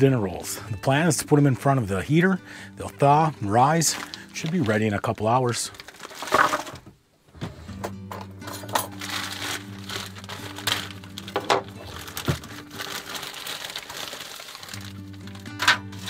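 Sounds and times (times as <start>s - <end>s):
plastic bag crinkling: 2.8s - 6.8s, 8.8s - 16.0s.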